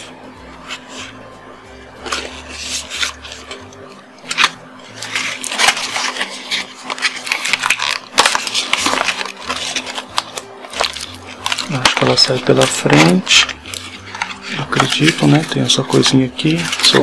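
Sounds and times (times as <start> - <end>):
packaging crackling: 4.2 - 17.0.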